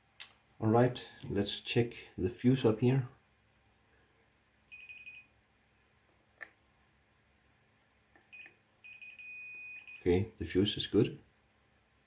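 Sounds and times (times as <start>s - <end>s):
multimeter continuity beeps: 4.7s - 5.3s, 8.3s - 10.2s.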